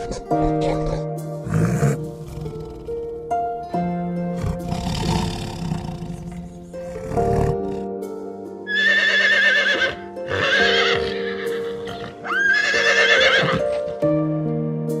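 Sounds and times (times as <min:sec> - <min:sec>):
soft background music: 0:00.0 - 0:15.0
horse whinnying: 0:08.7 - 0:14.0.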